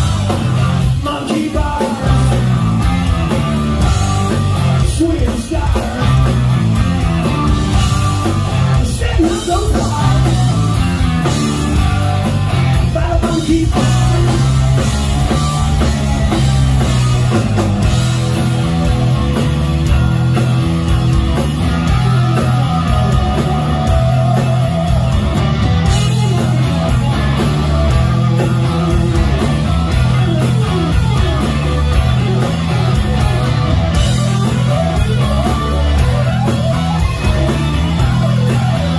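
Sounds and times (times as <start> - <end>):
bass guitar: 0.0 - 38.9
distorted electric guitars: 0.0 - 38.9
drum kit beat: 0.0 - 38.9.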